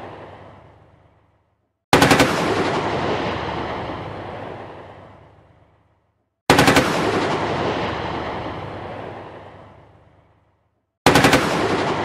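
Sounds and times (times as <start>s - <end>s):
gunfire echo: 1.9s - 5.5s, 6.5s - 10.4s, 11.0s - 12.0s.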